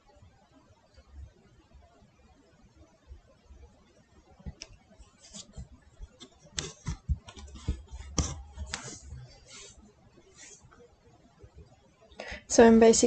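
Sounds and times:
pastel pencil scratching paper: 5.2s - 9.8s.

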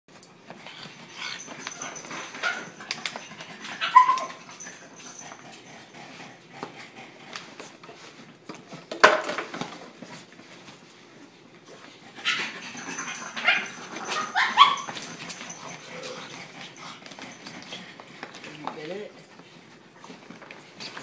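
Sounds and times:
puppy whining: 0.6s - 5.9s, 12.1s - 18.0s.

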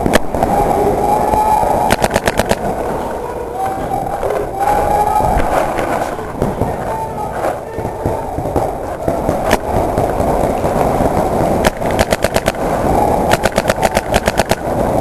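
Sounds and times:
steady background noise: 0.0s - 15.0s
paintball markers firing: 1.3s - 2.8s, 5.8s - 15.0s.

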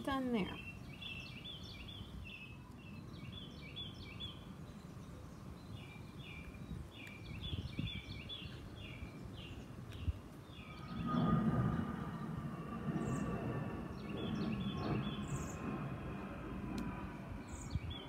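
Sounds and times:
songbird singing: 0.0s - 15.9s, 16.8s - 18.0s
low background rumble: 9.4s - 18.0s.

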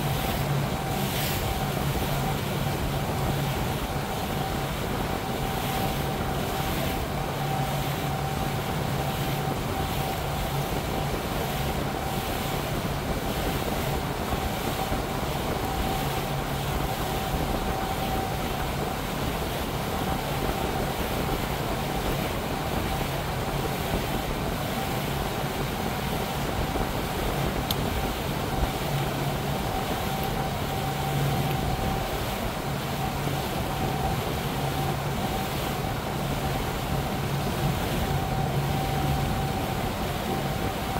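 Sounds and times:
motorboat engine droning: 0.0s - 40.9s
water rushing from hull: 0.0s - 40.9s.

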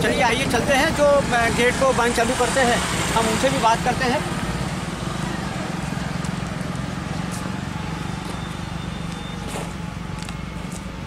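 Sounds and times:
low rumble of road traffic: 0.0s - 11.0s
footsteps on paved road: 3.2s - 11.0s.

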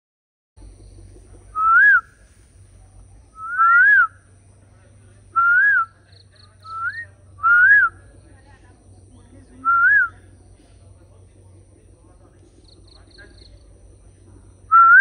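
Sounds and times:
peacock calling: 0.6s - 10.8s.

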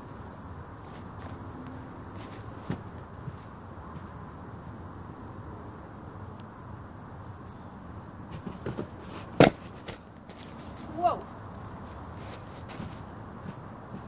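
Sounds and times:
outdoor background rumble: 0.0s - 14.0s
light footfalls: 0.8s - 4.2s, 8.3s - 14.0s.

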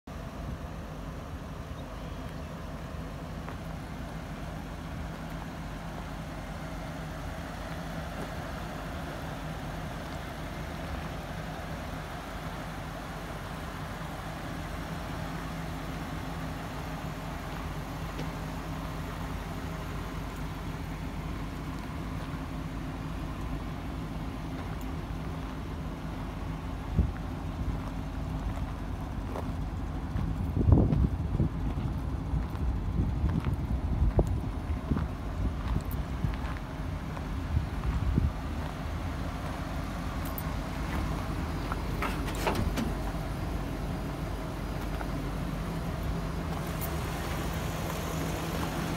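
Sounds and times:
truck engine idling: 0.0s - 48.9s.

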